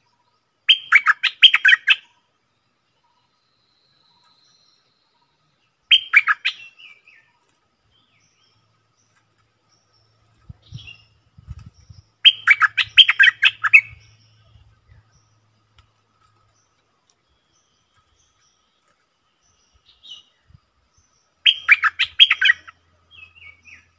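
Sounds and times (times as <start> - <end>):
bird singing bubbling notes: 12.0 - 15.2, 21.4 - 23.9.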